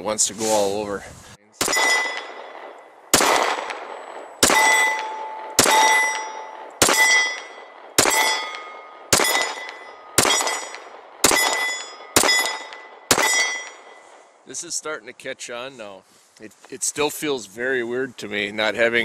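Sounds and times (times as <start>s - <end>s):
pistol shots: 1.6s - 14.1s
ringing tone after shots: 1.6s - 14.3s.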